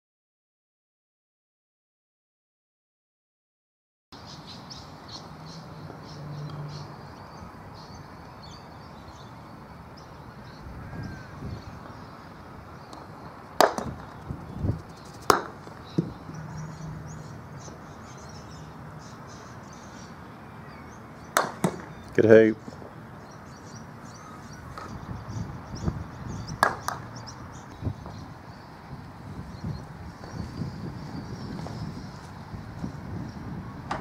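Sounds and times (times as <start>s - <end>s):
birds chirping: 4.2s - 34.0s
croquet mallet striking ball: 13.6s - 14.1s, 15.3s - 16.2s, 21.3s - 22.0s, 26.6s - 27.0s.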